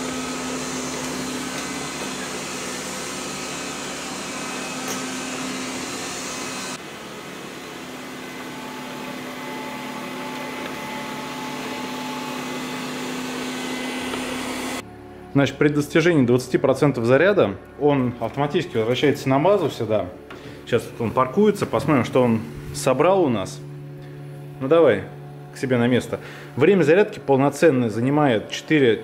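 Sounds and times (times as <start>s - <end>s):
robot vacuum motor humming: 0.0s - 14.8s.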